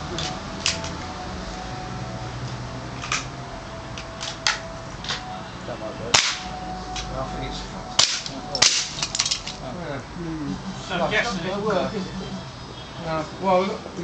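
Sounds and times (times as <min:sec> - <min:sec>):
air gun shots: 0:06.2 - 0:06.5, 0:08.0 - 0:09.1.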